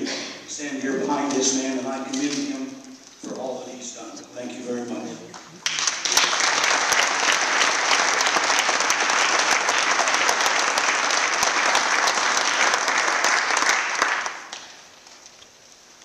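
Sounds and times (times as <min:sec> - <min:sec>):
crowd applauding: 0:05.3 - 0:14.9.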